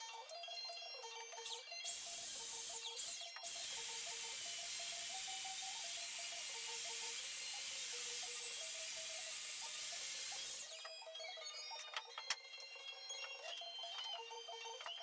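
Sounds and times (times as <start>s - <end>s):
power tool whining against steel: 1.9s - 11.1s.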